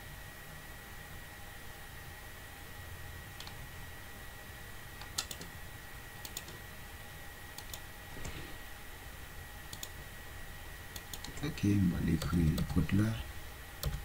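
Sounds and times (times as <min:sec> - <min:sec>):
faint high-pitched whine: 0:00.0 - 0:14.0
keyboard keystrokes and clicks: 0:05.0 - 0:05.5, 0:06.2 - 0:06.6, 0:07.6 - 0:07.8, 0:09.7 - 0:10.0, 0:10.9 - 0:11.4, 0:12.2 - 0:12.9, 0:13.8 - 0:14.0.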